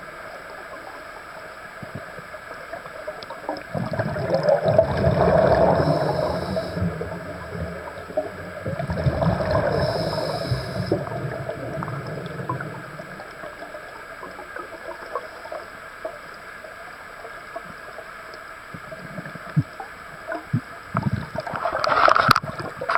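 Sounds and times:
underwater regulator bubbling: 3.2 - 13.6.

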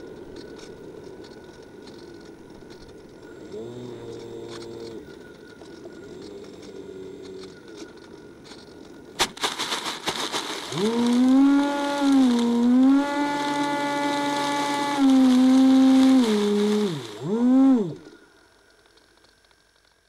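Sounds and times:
steady hiss: 0.0 - 20.0
model plane motor whining: 3.4 - 5.0, 10.7 - 18.2.

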